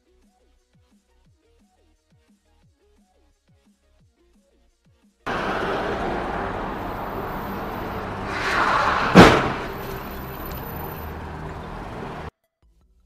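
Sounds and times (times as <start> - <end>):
car approaching: 5.3 - 12.3
loud car crash: 5.3 - 12.3
road traffic noise: 5.3 - 12.3.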